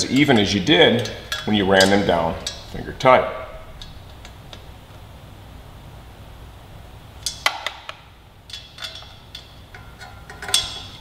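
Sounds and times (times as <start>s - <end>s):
ratchet metal clicks and clinks: 0.0s - 2.8s, 8.5s - 11.0s.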